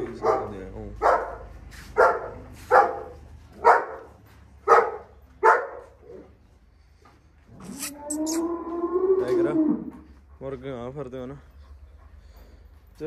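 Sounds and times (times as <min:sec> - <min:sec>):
dog barking: 0:00.1 - 0:06.0.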